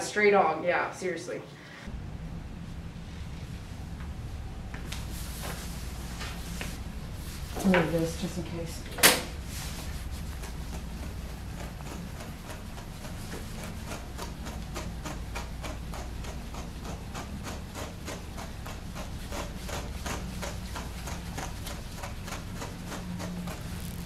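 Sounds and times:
brush strokes through dog coat: 9.5s - 14.1s.

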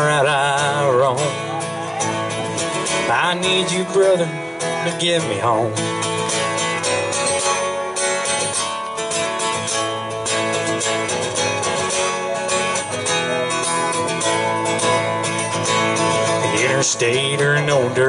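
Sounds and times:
acoustic guitar strumming: 0.0s - 18.0s.

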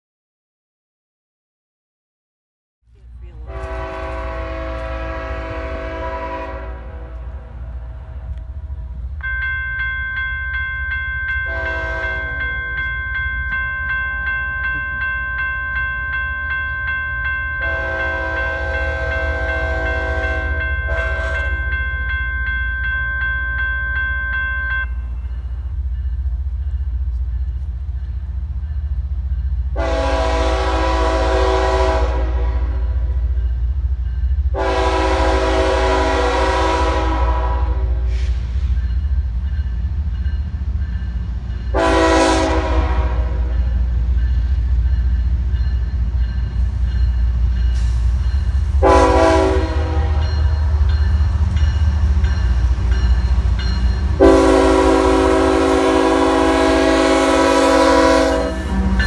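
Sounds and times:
locomotive low rumble: 2.8s - 22.4s
locomotive air horn blasts: 3.4s - 7.4s, 11.5s - 12.4s, 17.6s - 21.6s, 29.7s - 33.1s, 34.5s - 38.4s, 41.7s - 43.6s, 48.8s - 50.4s, 54.2s - 59.0s.

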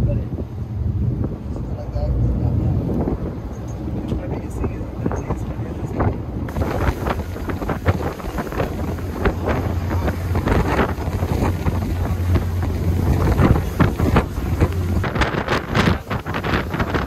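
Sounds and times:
wind buffeting microphone: 0.0s - 17.0s
steady low drone: 6.2s - 17.0s.

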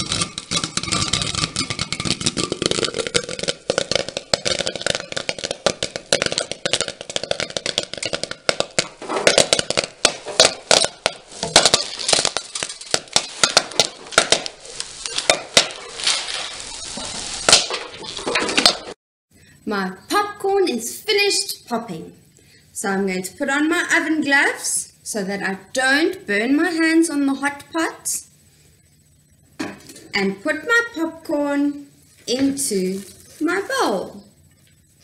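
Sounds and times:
oil sizzling: 0.0s - 19.0s
popcorn popping: 0.0s - 19.0s.

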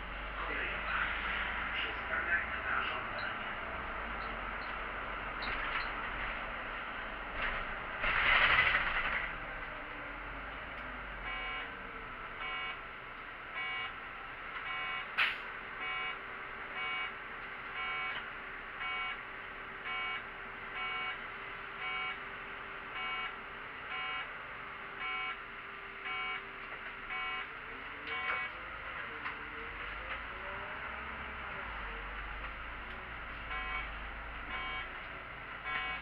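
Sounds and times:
electronic warning beeps: 11.2s - 11.8s, 12.4s - 12.8s, 13.6s - 14.0s, 14.7s - 15.1s, 15.8s - 16.2s, 16.8s - 17.1s, 17.8s - 18.2s, 18.8s - 19.2s, 19.9s - 20.2s, 20.8s - 21.2s, 21.8s - 22.2s, 23.0s - 24.3s, 25.0s - 25.4s, 26.0s - 26.5s, 27.1s - 27.5s, 28.1s - 28.6s, 33.5s - 34.9s, 35.6s - 36.0s.

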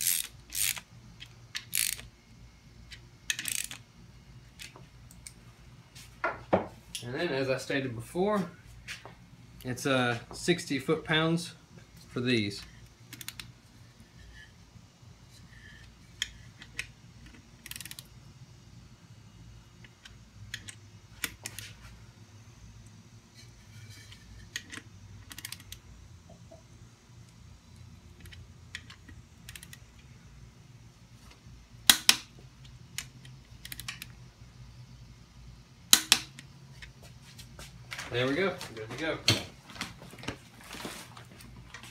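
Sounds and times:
torque wrench ratcheting clicks: 0.0s - 2.1s, 3.3s - 3.8s, 13.1s - 13.5s, 17.6s - 18.1s, 24.6s - 25.8s, 28.3s - 29.8s, 33.0s - 34.1s
low steady hum: 0.0s - 41.9s.

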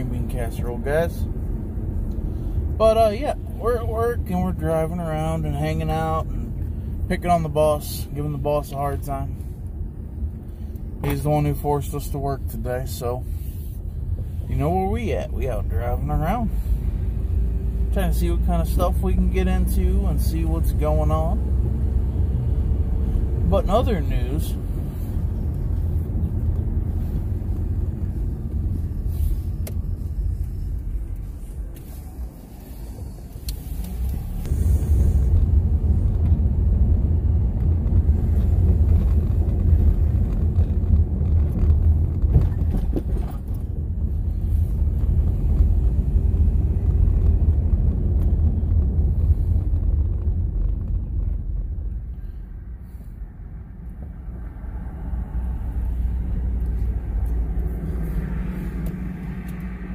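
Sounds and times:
car engine and road rumble: 0.0s - 59.9s.

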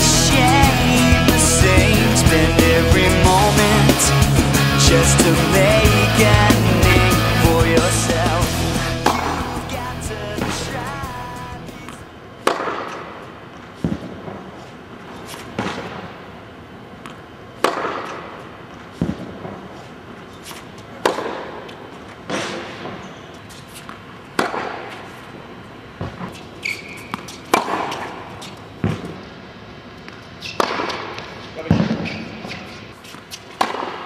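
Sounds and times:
tennis racquet hitting ball: 9.0s - 9.7s, 11.8s - 13.0s, 17.6s - 18.2s, 21.0s - 21.7s, 23.7s - 25.0s, 26.0s - 29.1s, 30.4s - 34.0s.

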